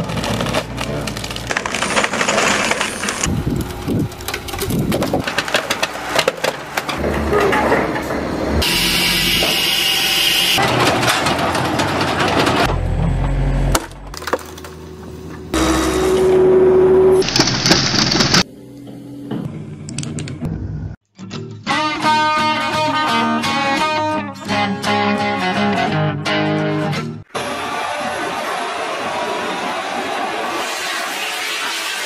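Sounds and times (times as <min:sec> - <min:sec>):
wood cracking and splintering: 0:00.0 - 0:07.1, 0:13.7 - 0:14.8, 0:17.2 - 0:18.4
machinery running: 0:00.0 - 0:13.7, 0:15.0 - 0:21.0.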